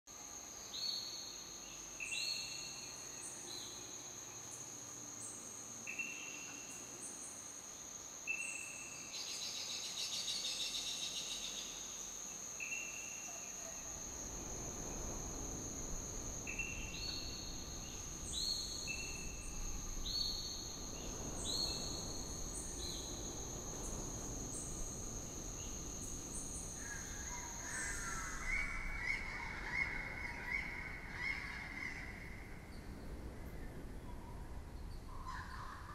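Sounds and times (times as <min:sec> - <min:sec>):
high insect drone: 0:00.1 - 0:35.9
low rumble: 0:13.7 - 0:29.8.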